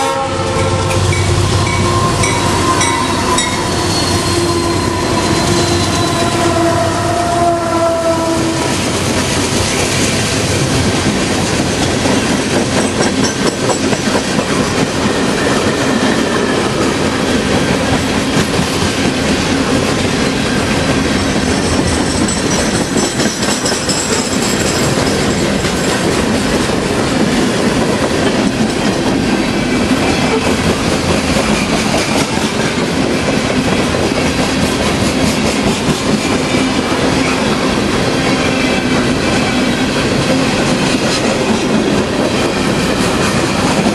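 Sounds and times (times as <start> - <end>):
freight train wheels rumbling: 0.0 - 43.9
faint high wheel squeal: 1.7 - 6.6
clickety-clack over rail joints: 8.8 - 43.9.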